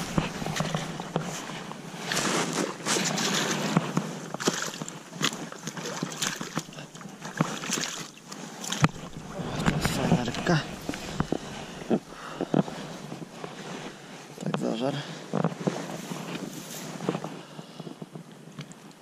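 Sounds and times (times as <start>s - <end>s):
water sloshing and splashing: 0.0s - 14.3s.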